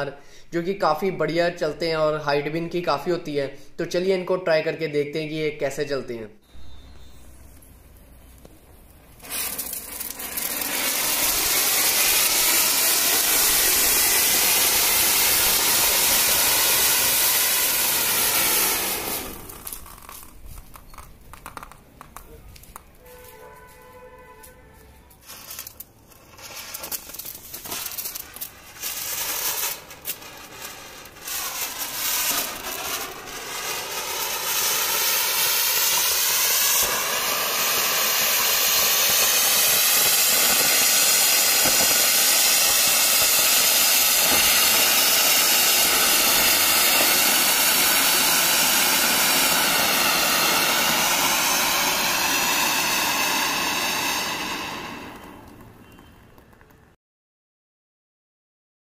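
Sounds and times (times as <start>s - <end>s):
fountain firework hissing: 6.7s - 22.2s, 25.2s - 56.0s.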